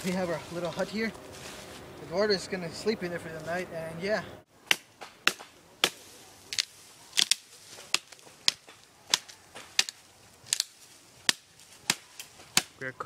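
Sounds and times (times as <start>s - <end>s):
blade chopping bamboo: 4.6s - 12.8s.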